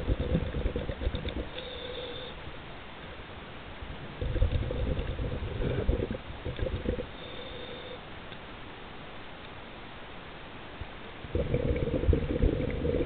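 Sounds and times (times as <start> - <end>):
gurgling bubbles from regulator: 0.0 - 1.6, 4.2 - 7.1, 11.2 - 13.0
underwater hiss: 0.1 - 2.4.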